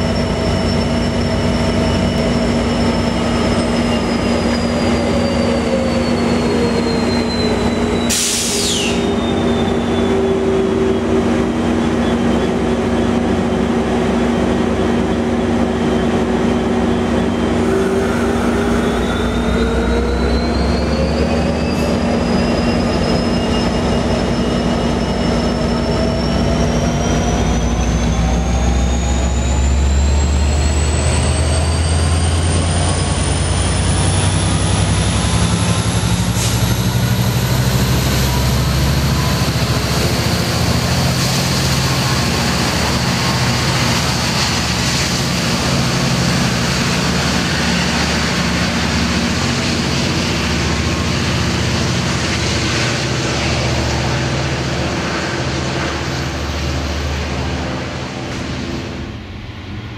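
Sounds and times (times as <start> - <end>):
diesel locomotive engine hum: 0.0 - 59.9
turbocharger whine: 17.2 - 22.7.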